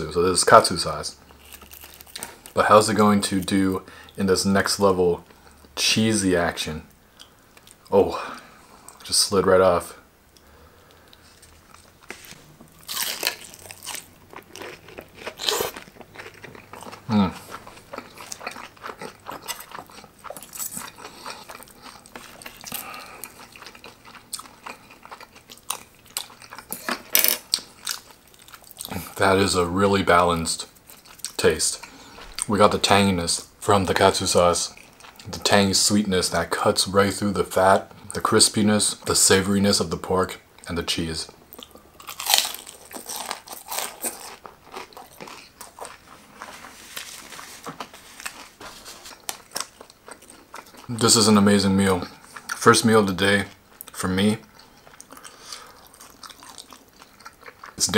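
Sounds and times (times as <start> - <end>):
crunchy chewing: 1.3 - 2.6, 10.4 - 29.2, 30.6 - 32.5, 41.5 - 51.1, 53.7 - 57.8.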